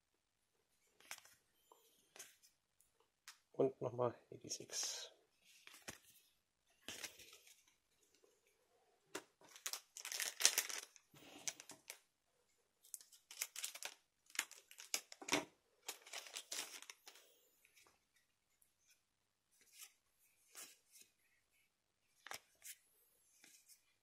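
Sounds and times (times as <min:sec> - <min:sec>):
foil wrappers crinkling: 0:09.5 - 0:12.0, 0:12.9 - 0:15.2, 0:15.9 - 0:17.2.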